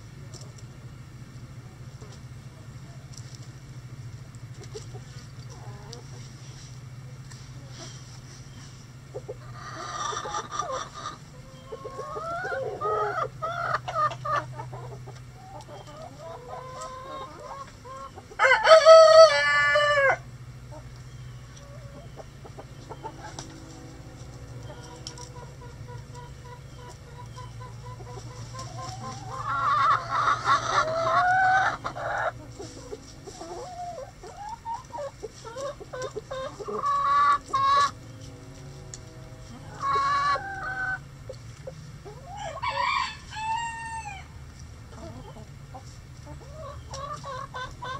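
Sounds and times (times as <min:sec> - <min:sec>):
chickens clucking: 0:00.0 - 0:47.9
rooster crowing: 0:18.4 - 0:20.2, 0:42.2 - 0:44.4.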